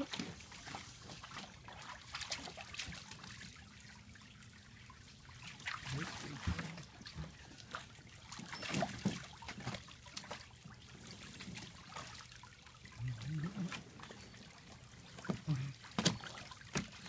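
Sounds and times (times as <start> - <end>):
dogs splashing in pool water: 0.0 - 17.0
water trickling: 0.0 - 17.0.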